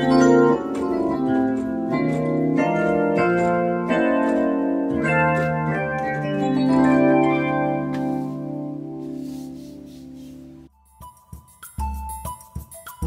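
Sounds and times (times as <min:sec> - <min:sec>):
keyboard playing organ-like chords: 0:00.0 - 0:10.4.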